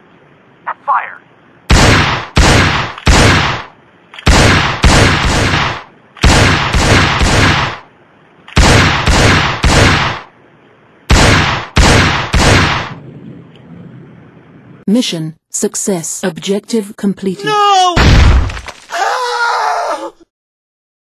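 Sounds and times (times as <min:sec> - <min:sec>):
gunshots in bursts: 0:01.7 - 0:07.9, 0:08.5 - 0:10.3, 0:11.1 - 0:13.0.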